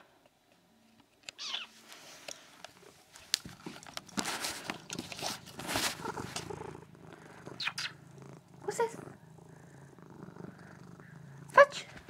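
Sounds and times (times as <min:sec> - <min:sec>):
camera rubbing against fur: 0:01.4 - 0:07.9.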